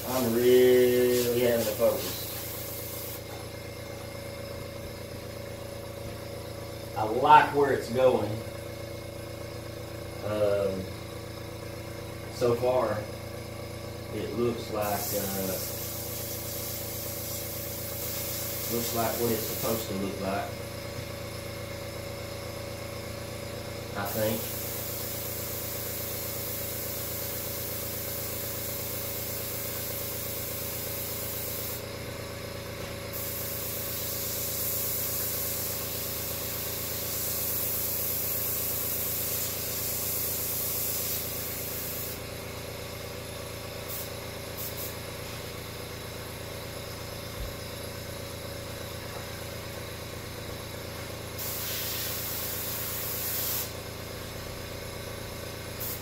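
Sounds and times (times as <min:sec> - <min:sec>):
airbrush hissing: 0:00.0 - 0:03.4, 0:14.7 - 0:20.3, 0:24.0 - 0:31.8, 0:33.1 - 0:42.2, 0:43.8 - 0:45.0, 0:51.4 - 0:53.8, 0:55.8 - 0:56.0
air compressor humming: 0:00.0 - 0:56.0.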